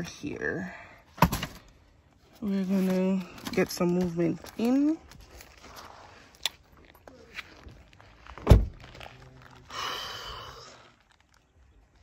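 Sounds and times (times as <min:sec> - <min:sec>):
rustle: 0:04.4 - 0:12.0
car door shutting: 0:08.4 - 0:08.8.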